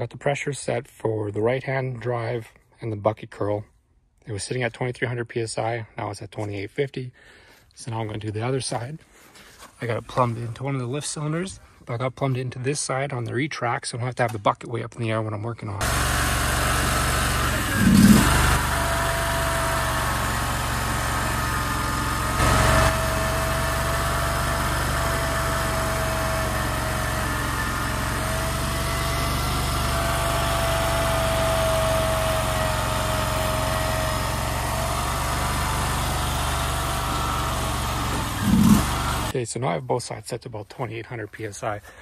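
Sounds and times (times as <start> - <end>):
engine running steadily: 15.8 - 39.3
hydraulic whine: 15.8 - 39.3.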